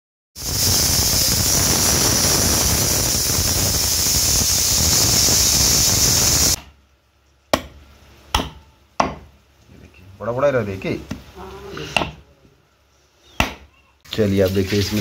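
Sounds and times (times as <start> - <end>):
pressure cooker steam hiss: 0.4 - 6.6.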